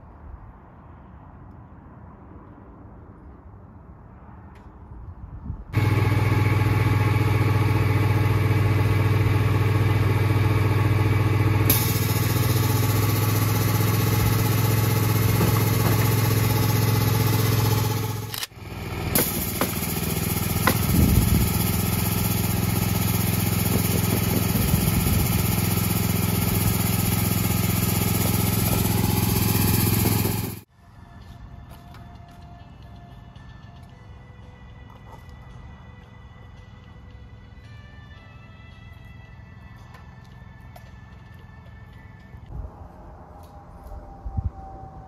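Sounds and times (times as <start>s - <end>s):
small gasoline engine running: 5.8s - 30.7s.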